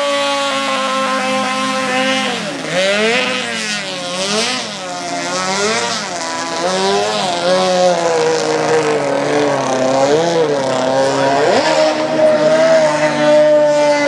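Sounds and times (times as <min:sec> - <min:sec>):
racing motorboat engine: 0:00.0 - 0:14.0.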